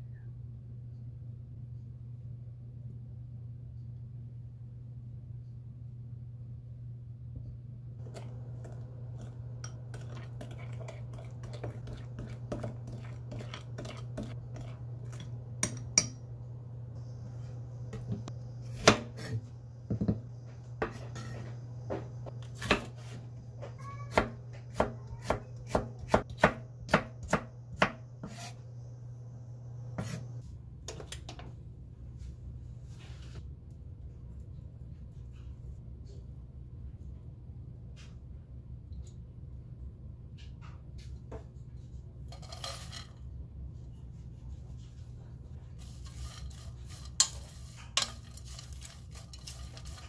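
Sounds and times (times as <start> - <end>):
low hum: 0.0 - 22.6
knife chopping on wooden board: 24.1 - 28.5.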